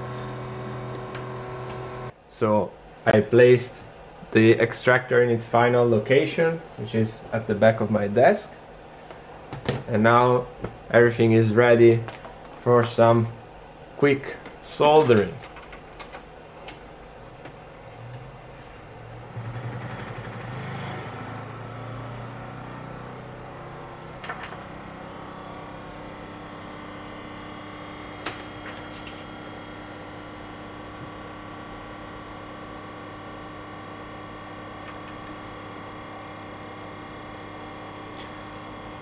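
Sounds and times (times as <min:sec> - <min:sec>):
electric fan motor whining: 0:00.0 - 0:04.3, 0:11.0 - 0:39.0.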